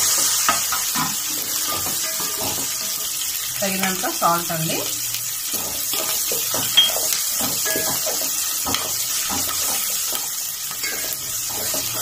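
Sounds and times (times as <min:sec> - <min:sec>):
spices sizzling in hot oil: 0:00.0 - 0:12.0
wooden spatula scraping pot: 0:05.5 - 0:12.0.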